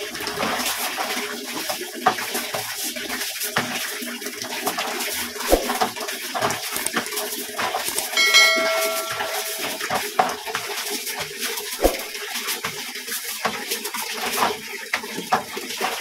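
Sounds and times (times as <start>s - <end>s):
water splashing and sloshing: 5.1s - 5.9s
bell-like chime: 8.2s - 10.0s.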